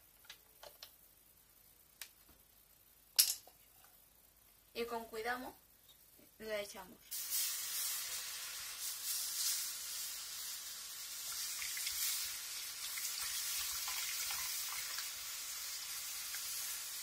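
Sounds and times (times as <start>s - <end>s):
milk sizzling in hot pan: 7.0s - 17.0s.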